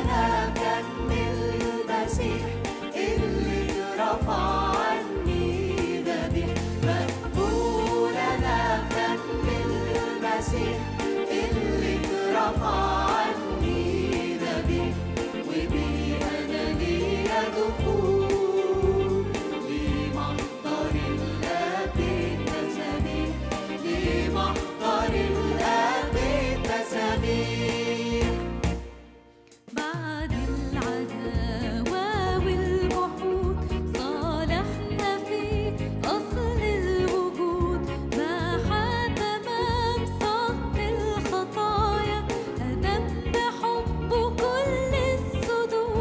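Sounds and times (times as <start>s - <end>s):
choir voices: 0.0s - 29.4s
woman singing a hymn: 29.9s - 46.0s.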